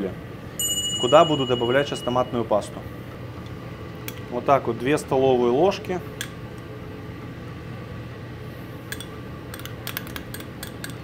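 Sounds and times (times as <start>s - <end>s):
ventilation and machinery hum: 0.0s - 11.0s
spoon clicking on a pot: 8.9s - 11.0s.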